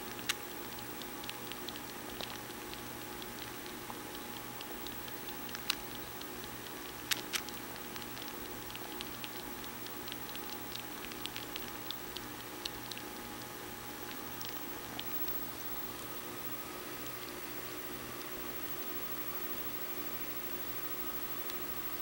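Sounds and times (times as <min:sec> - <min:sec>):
kitten sucking clicks: 0:00.0 - 0:15.4.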